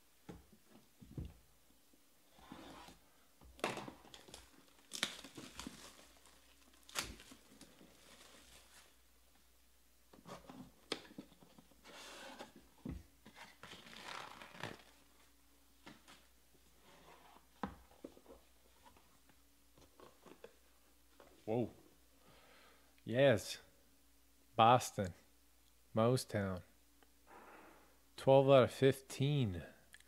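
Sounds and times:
plastic shrink wrap crinkling: 3.6 - 9.0.

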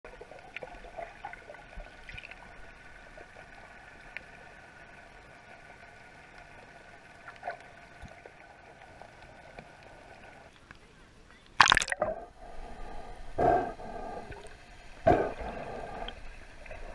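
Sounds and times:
bubble pops: 11.6 - 12.0
distant boat motor hum underwater: 11.9 - 16.9.

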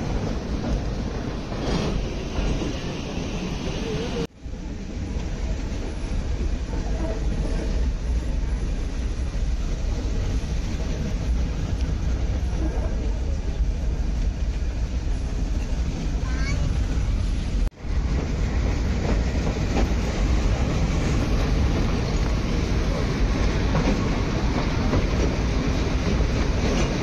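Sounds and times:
train carriages rumbling on track: 0.0 - 27.0.

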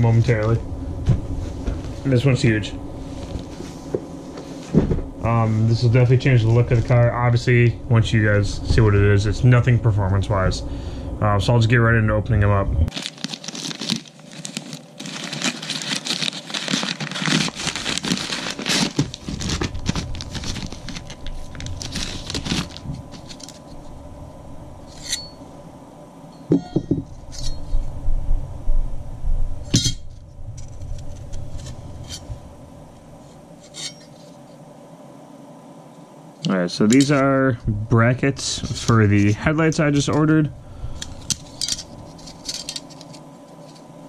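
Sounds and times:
plastic bag tearing and crinkling: 12.9 - 23.7.

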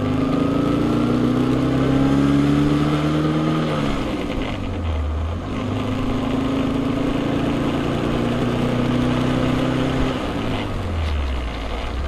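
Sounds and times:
road noise: 0.0 - 12.0
car engine running: 3.2 - 12.0.

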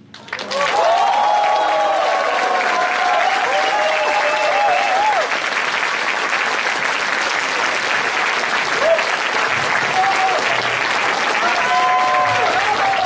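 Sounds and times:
audience applauding: 0.0 - 13.0
gliding cheers: 0.3 - 5.5, 8.7 - 13.0.

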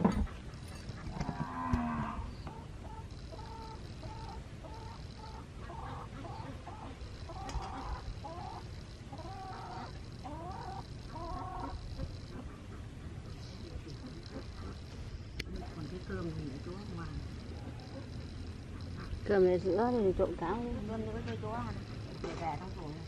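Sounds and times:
chicken clucking: 2.4 - 15.0.

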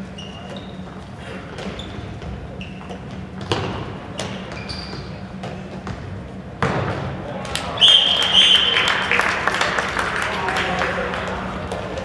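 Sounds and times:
shoes squeaking on floor: 0.0 - 6.1
ball bouncing on court: 1.6 - 7.2.

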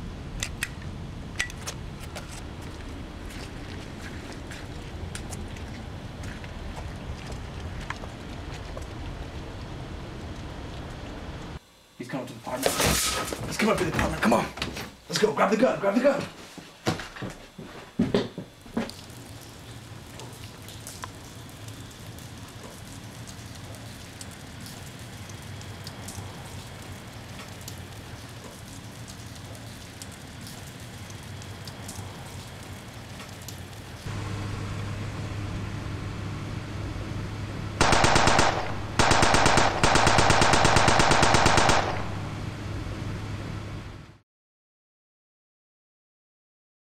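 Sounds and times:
low hum: 33.8 - 44.2
automatic gunfire: 37.8 - 42.4.

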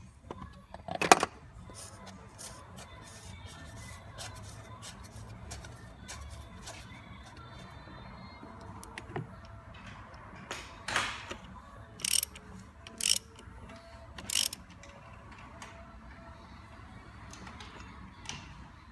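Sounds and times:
socket ratchet clicking: 12.0 - 13.5, 14.2 - 14.7.

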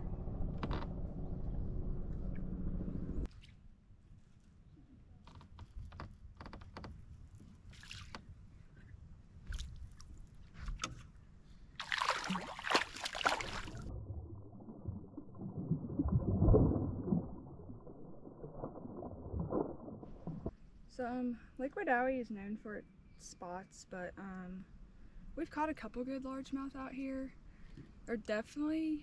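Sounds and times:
slowed muffled splash: 7.4 - 8.4, 9.4 - 10.9, 11.8 - 20.5
fish splashing in water: 11.8 - 20.5.

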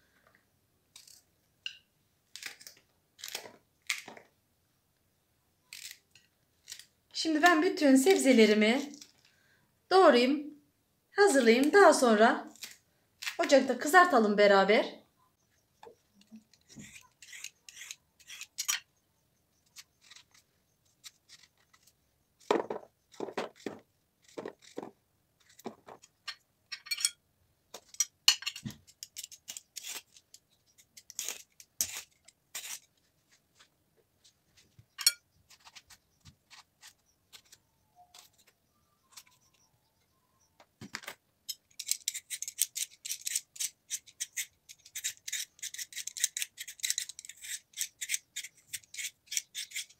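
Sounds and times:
peeler scraping potato skin: 0.9 - 1.2, 2.3 - 4.1, 5.7 - 9.0, 16.1 - 18.9, 19.6 - 26.2, 28.8 - 33.1, 34.9 - 39.7, 41.5 - 49.9
knife cutting vegetables: 16.3 - 18.8, 19.7 - 26.1, 28.9 - 32.9, 41.8 - 49.9.

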